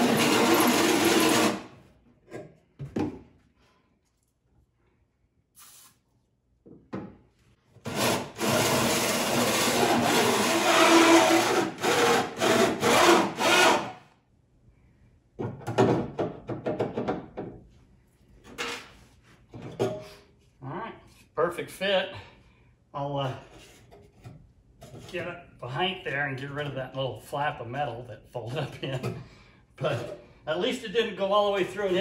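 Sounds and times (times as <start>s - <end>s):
drill hole saw cutting steel: 0.0s - 1.7s, 7.9s - 14.0s.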